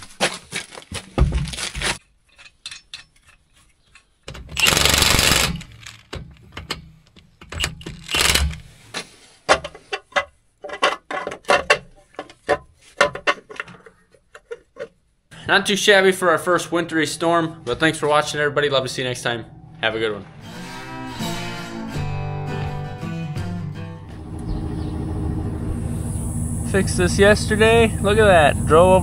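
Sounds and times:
impact wrench bursts: 4.5 - 6.1, 7.9 - 8.7
metal clicks and knocks of lug nuts: 5.7 - 8.6.

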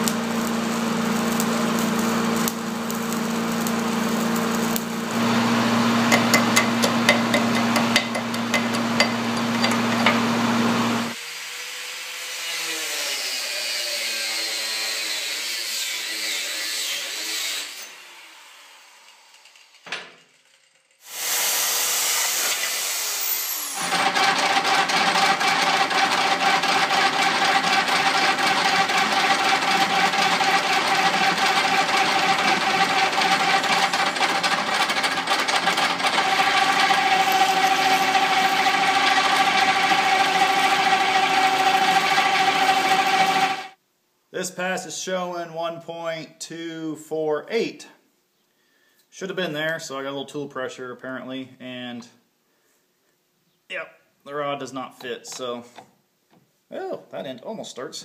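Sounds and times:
angle grinder grinding metal: 0.0 - 11.2, 12.3 - 43.8
arc welding crackling: 0.0 - 11.2, 23.8 - 43.7
metal lathe running: 3.6 - 11.2, 23.8 - 43.8
motor winding down: 23.2 - 43.8.

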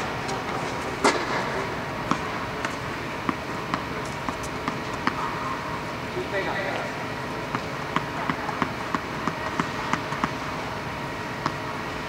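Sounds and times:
racket hitting tennis ball: 0.3 - 5.5, 7.5 - 10.5.

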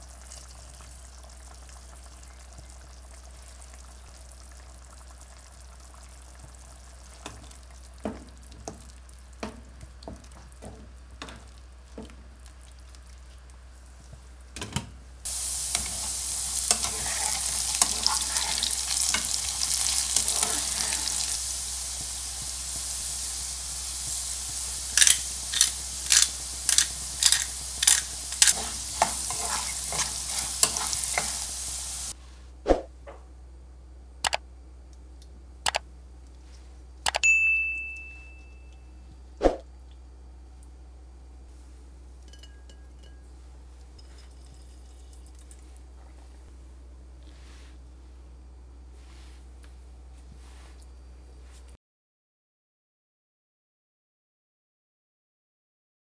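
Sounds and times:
potatoes sizzling in hot oil: 15.2 - 32.2
single clicks: 34.2 - 34.4.

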